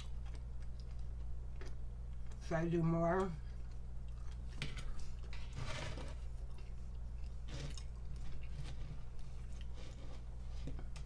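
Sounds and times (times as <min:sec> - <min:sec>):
mouth chewing: 0:00.0 - 0:02.4
steady low hum: 0:00.0 - 0:11.0.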